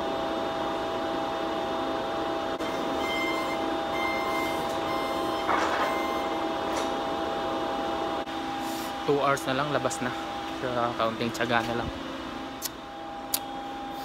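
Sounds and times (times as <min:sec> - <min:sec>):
factory machinery hum: 0:00.0 - 0:14.0
forklift warning beeps: 0:02.6 - 0:06.6.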